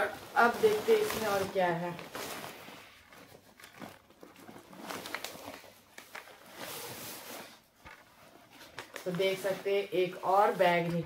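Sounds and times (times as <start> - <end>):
shopping bags rustling: 0.0 - 11.0.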